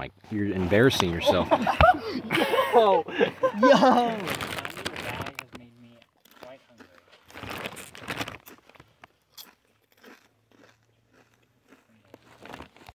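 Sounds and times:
person chewing crunchy snack: 6.2s - 12.9s.

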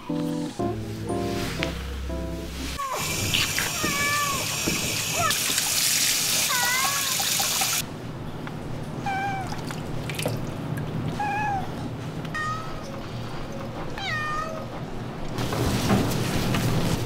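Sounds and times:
shower spray running: 2.6s - 7.8s
cat meowing: 14.0s - 14.7s.

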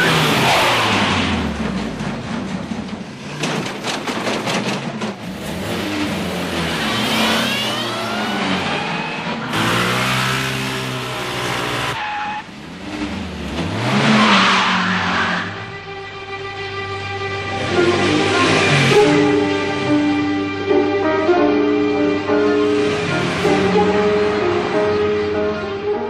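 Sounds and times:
motor scooter engine revving: 5.2s - 12.0s
music: 15.6s - 26.0s.

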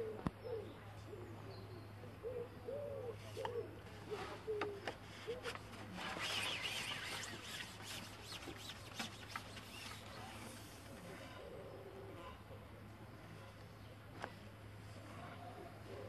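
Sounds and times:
pigeon cooing: 0.0s - 5.6s, 15.2s - 16.0s
fishing pole rubbing and clicking: 4.8s - 11.0s.

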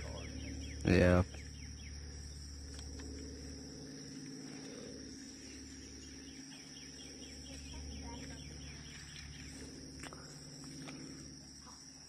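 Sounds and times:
low rumble: 0.0s - 11.4s
insects droning: 0.0s - 12.0s.

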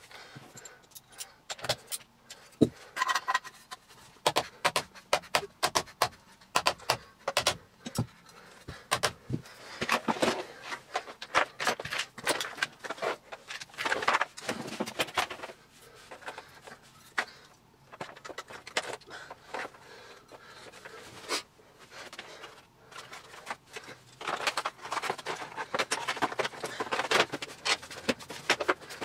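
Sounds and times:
plastic parts clicking and knocking: 0.9s - 20.9s, 22.0s - 29.0s
rustling and scraping: 8.0s - 29.0s.

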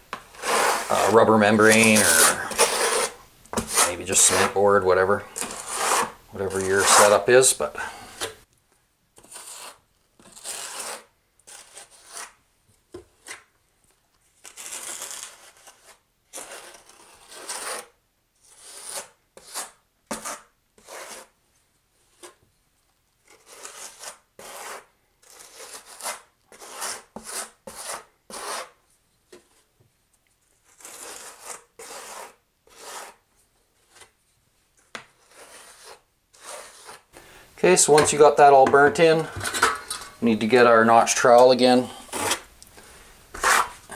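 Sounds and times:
trowel scraping mortar: 0.2s - 8.4s, 9.2s - 12.4s, 14.4s - 21.4s, 23.2s - 28.8s, 30.6s - 34.2s, 35.0s - 37.1s, 37.7s - 42.5s, 43.3s - 43.9s.

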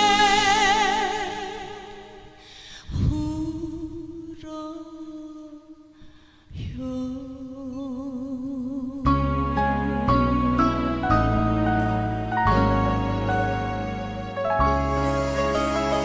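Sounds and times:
woman singing into a microphone: 0.0s - 11.5s
musical accompaniment: 9.1s - 16.0s.

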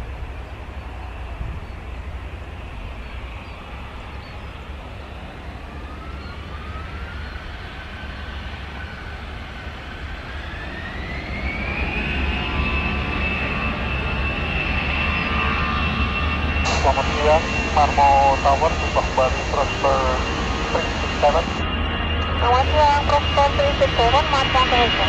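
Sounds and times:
jet engines spooling up: 10.0s - 25.0s
low rumble: 16.6s - 25.0s.

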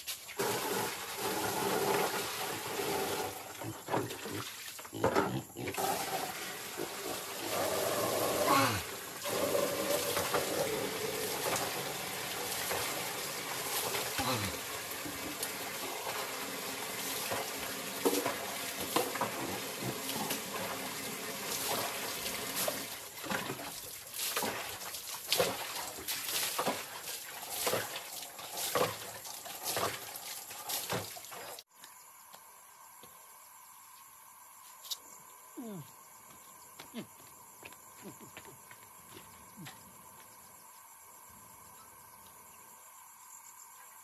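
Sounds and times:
insects chirring: 0.0s - 44.0s
water splashing: 5.8s - 31.6s.

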